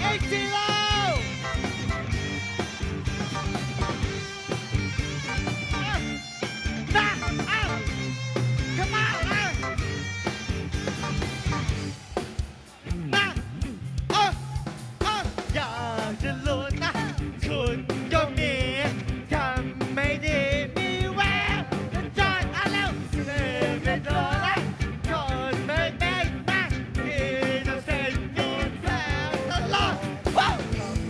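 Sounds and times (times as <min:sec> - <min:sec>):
electric guitar: 0:00.0 - 0:14.2, 0:15.6 - 0:31.0
drums: 0:00.0 - 0:31.0
man singing into a microphone: 0:15.0 - 0:30.7.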